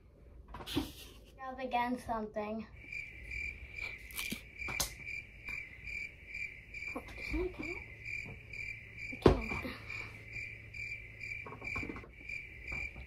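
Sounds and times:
high-pitched pulsing chirping: 0:02.8 - 0:13.0
sharp clicks: 0:04.1 - 0:05.6.

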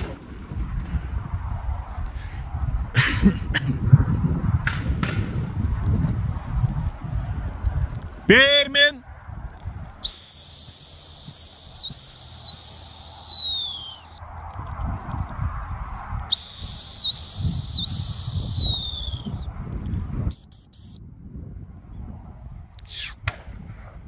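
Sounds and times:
wind rumbling on microphone: 0:00.0 - 0:24.0
dog training whistle toots: 0:10.0 - 0:14.2, 0:16.3 - 0:19.4, 0:20.3 - 0:21.0.

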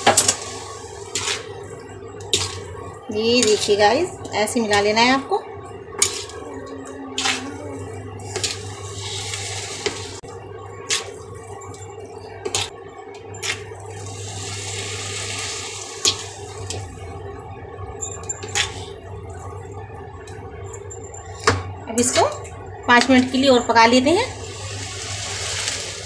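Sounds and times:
noodles sizzling in a wok: 0:00.0 - 0:01.6, 0:08.3 - 0:10.2, 0:13.6 - 0:16.8, 0:24.4 - 0:26.0
steady low hum: 0:00.0 - 0:26.0.

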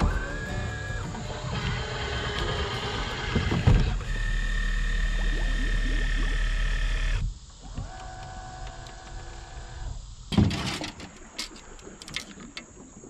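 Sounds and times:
electric motor whining: 0:00.0 - 0:10.0.

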